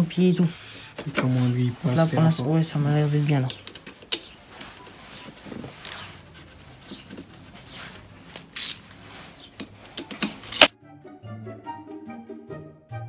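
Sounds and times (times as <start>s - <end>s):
metal parts and tools clicking: 8.3s - 8.8s, 9.6s - 10.7s.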